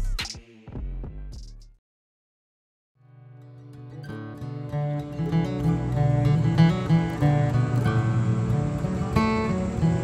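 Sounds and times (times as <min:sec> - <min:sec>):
background music with a beat: 0:00.0 - 0:01.8.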